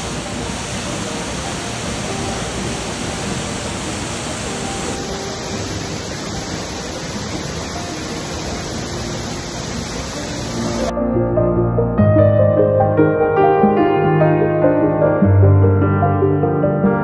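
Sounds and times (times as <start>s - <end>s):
waterfall splashing into pool: 0.0s - 10.9s.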